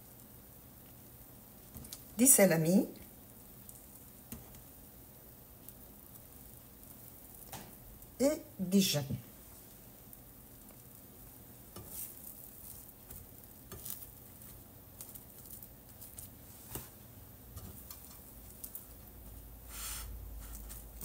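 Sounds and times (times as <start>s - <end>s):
faint sizzle: 0.0s - 21.0s
food clicks and taps in a pan: 1.7s - 2.1s, 3.7s - 4.7s, 7.4s - 7.8s, 13.0s - 16.9s, 17.6s - 18.9s
sandwich rustle: 10.6s - 21.0s.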